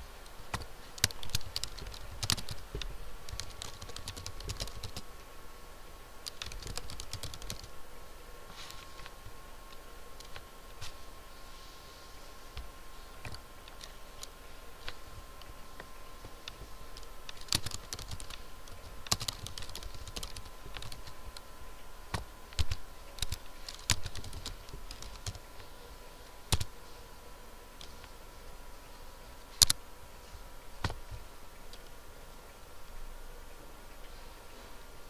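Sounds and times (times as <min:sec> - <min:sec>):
faint steady tone: 0:00.0 - 0:35.0
keyboard typing clicks: 0:00.5 - 0:05.0, 0:06.2 - 0:07.7, 0:16.4 - 0:21.4, 0:22.1 - 0:25.6.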